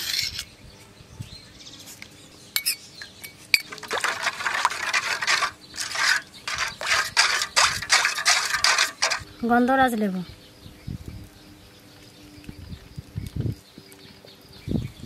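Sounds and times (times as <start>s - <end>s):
spoon stirring and splashing water: 3.6s - 9.3s.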